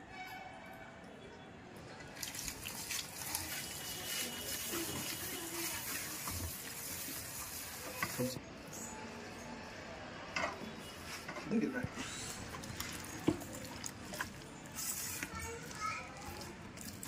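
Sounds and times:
paste rubbed onto raw chicken: 2.4 - 8.3
hands squishing wet paste: 12.3 - 17.0.

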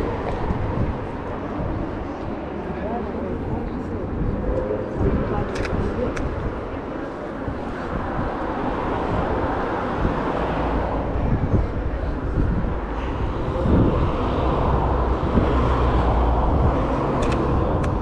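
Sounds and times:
cars passing rumble: 0.0 - 18.0.

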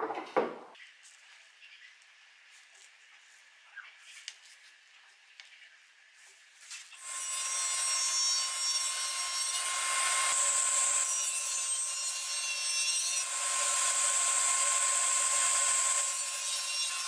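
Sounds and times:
table saw cutting wood: 7.0 - 17.0.

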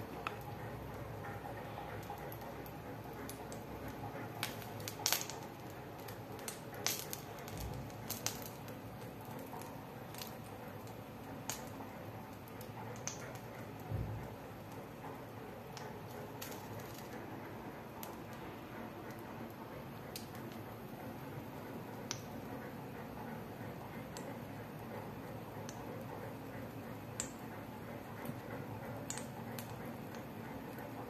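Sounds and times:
burning matchsticks crackling: 4.3 - 11.8.

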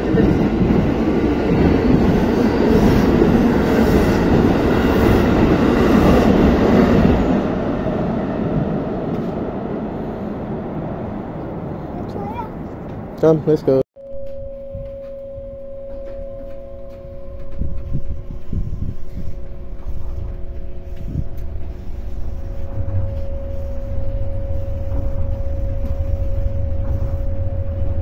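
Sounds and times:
train rumble: 0.0 - 13.8, 15.0 - 28.0
steady hum: 14.0 - 28.0.

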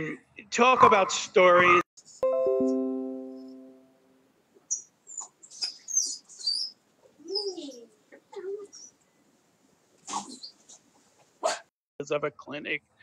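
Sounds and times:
chime-like chord: 2.2 - 4.2
high chirping squeaks: 4.7 - 7.9, 10.1 - 10.8.

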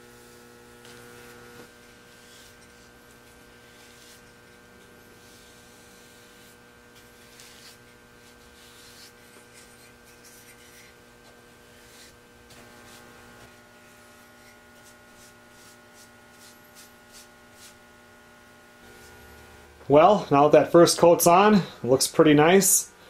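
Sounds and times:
steady low hum: 0.0 - 23.0
paintbrush strokes on wood: 0.8 - 18.1.

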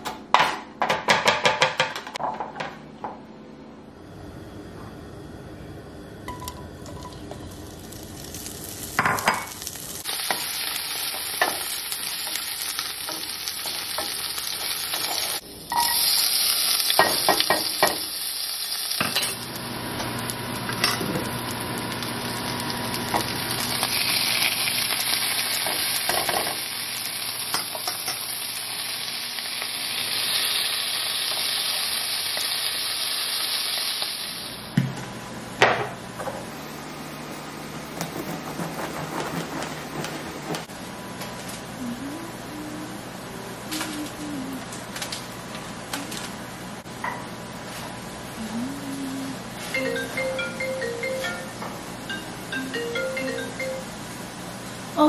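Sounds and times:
food sizzling in hot oil: 6.3 - 34.7.

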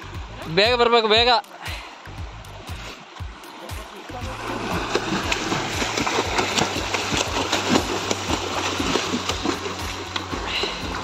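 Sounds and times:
person splashing in water: 4.2 - 11.0.

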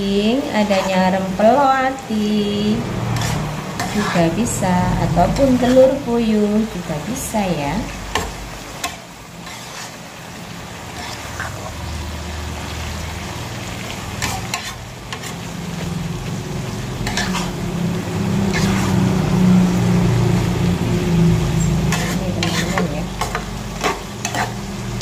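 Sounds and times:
food sizzling in a wok: 0.0 - 25.0
metal spatula scraping a pan: 0.6 - 1.3, 3.0 - 6.2, 8.1 - 10.1, 10.8 - 11.8, 14.1 - 15.6, 16.9 - 19.2, 21.6 - 24.8
low hum: 2.3 - 8.1.

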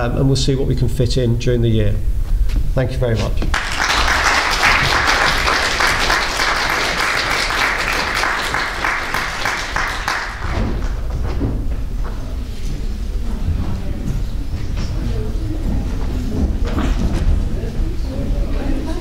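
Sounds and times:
audience applauding: 3.5 - 10.9.

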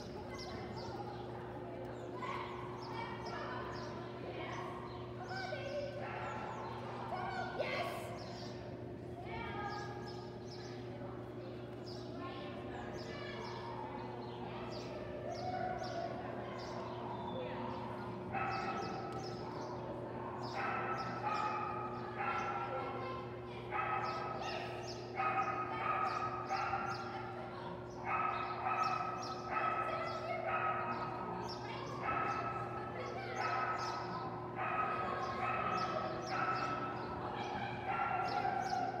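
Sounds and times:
dog barking: 17.7 - 19.4, 20.2 - 27.4, 28.0 - 31.3, 31.9 - 39.0.

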